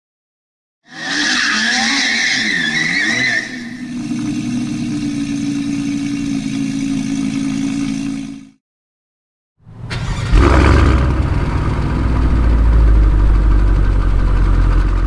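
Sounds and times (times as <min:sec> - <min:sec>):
tyre squeal: 0:00.9 - 0:03.9
car engine revving: 0:00.9 - 0:08.6, 0:09.9 - 0:15.0.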